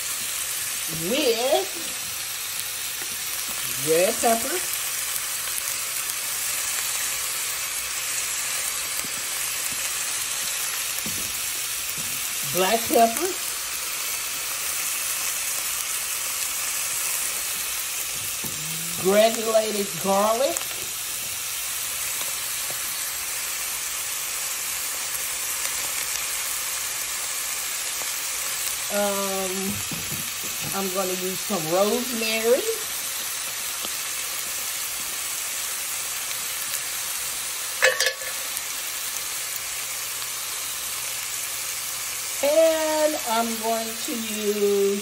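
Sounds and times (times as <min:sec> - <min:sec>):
meat and vegetables sizzling in skillet: 0:00.0 - 0:45.0.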